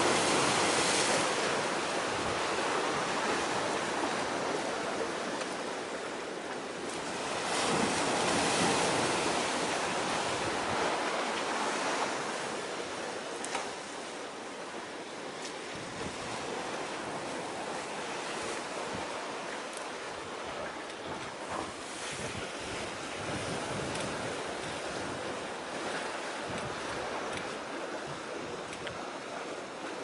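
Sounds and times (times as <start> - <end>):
sea waves washing: 0.0 - 30.0
wind buffeting microphone: 7.2 - 12.4, 15.6 - 19.4, 20.0 - 29.2.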